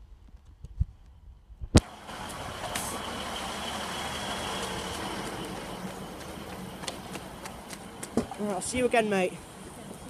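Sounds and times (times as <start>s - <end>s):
diesel railcar engine running: 1.8s - 10.0s.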